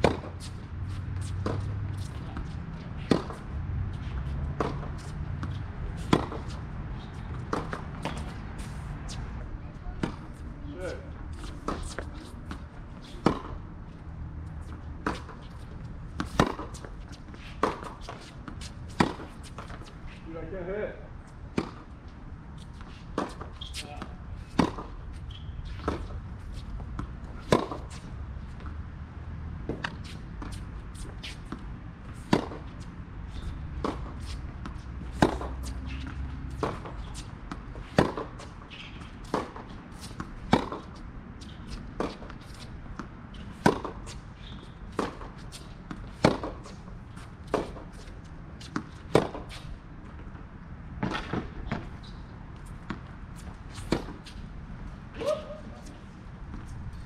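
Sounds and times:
rackets striking tennis ball: 0.0 - 2.4, 3.0 - 3.5, 4.2 - 9.2, 10.0 - 13.6, 23.2 - 25.0, 33.8 - 46.9, 48.7 - 49.7, 51.0 - 52.2
tennis ball bouncing: 0.0 - 10.5, 11.3 - 13.6, 14.6 - 20.0, 21.4 - 21.9, 22.6 - 28.8, 29.6 - 50.4, 51.0 - 57.0.

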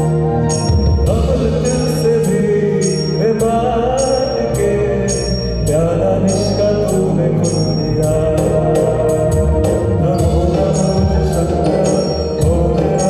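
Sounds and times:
electric bass: 0.0 - 13.0
keyboard: 0.0 - 13.0
man singing into a microphone: 0.7 - 13.0.

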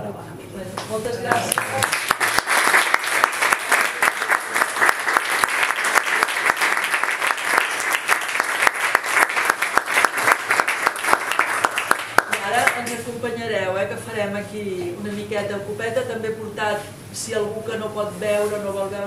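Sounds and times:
crowd applauding: 1.3 - 12.8.

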